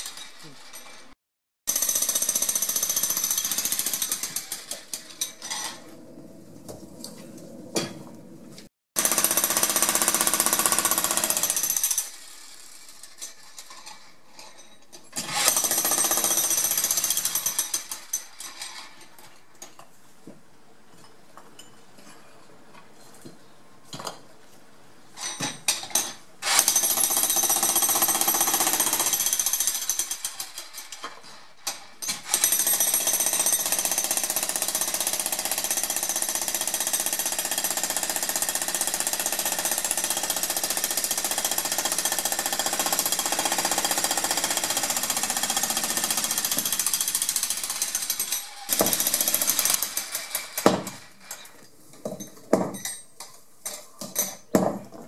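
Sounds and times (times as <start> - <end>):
electric jackhammer hammering stone: 9.0 - 12.1, 32.3 - 51.0.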